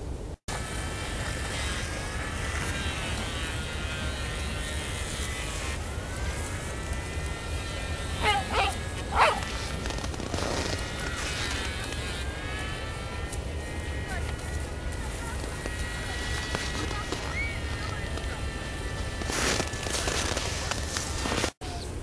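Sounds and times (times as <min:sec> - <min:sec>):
steady wavering drone: 0:00.5 - 0:20.0
dog barking: 0:08.2 - 0:09.5.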